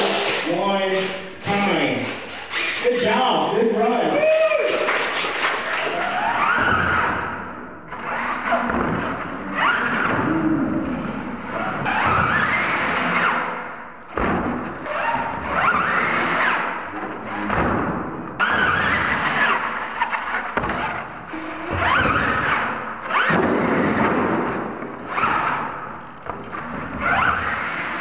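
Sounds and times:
rc truck motor revving whine: 0:27.0 - 0:28.0.

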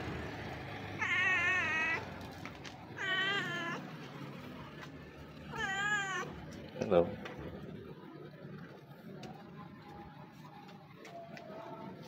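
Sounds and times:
cat meowing: 0:01.0 - 0:02.1, 0:03.0 - 0:03.9, 0:05.5 - 0:06.4.

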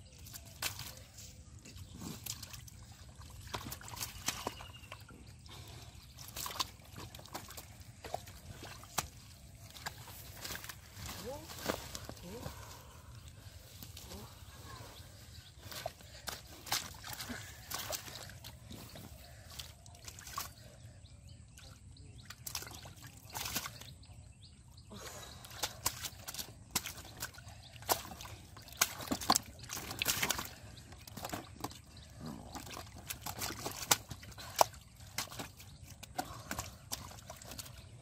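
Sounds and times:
hands splashing in muddy water: 0:00.0 - 0:20.8, 0:21.6 - 0:24.2, 0:25.2 - 0:38.0
sharp wet slaps: 0:00.2 - 0:01.0, 0:03.4 - 0:04.7, 0:06.2 - 0:10.8, 0:15.7 - 0:18.6, 0:22.3 - 0:23.9, 0:25.5 - 0:31.8, 0:32.5 - 0:37.8.

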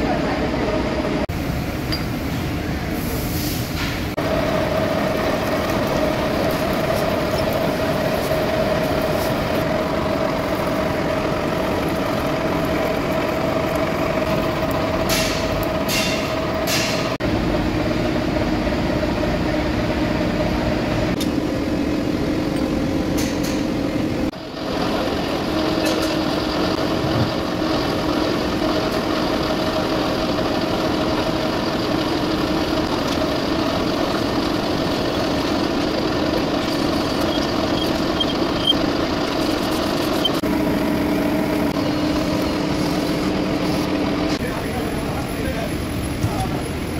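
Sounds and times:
metal lathe running: 0:04.2 - 0:17.2, 0:24.4 - 0:46.0.

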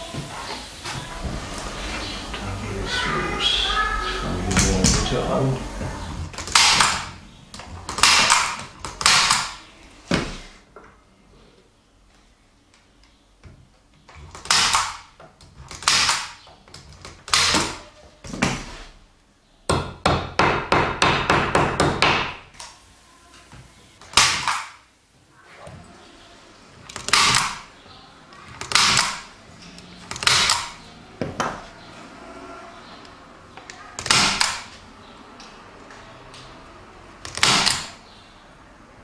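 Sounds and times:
staple gun firing: 0:07.9 - 0:09.5, 0:30.1 - 0:30.8.

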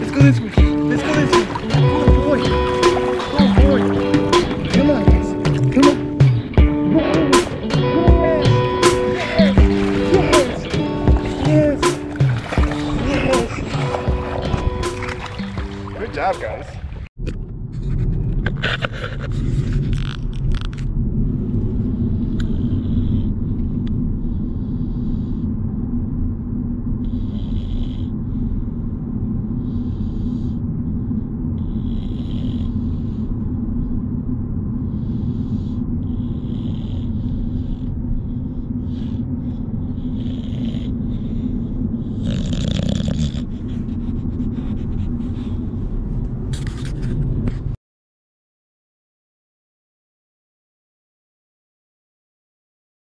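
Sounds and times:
dogs snoring: 0:00.0 - 0:16.2, 0:22.0 - 0:25.5, 0:27.0 - 0:28.7, 0:29.6 - 0:30.6, 0:31.6 - 0:33.4, 0:34.9 - 0:45.8.

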